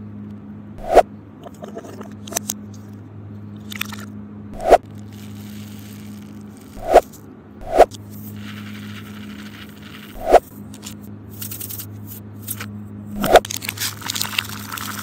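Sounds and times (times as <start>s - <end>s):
low steady hum: 0.0s - 15.0s
beads pattering on stone: 5.0s - 7.2s.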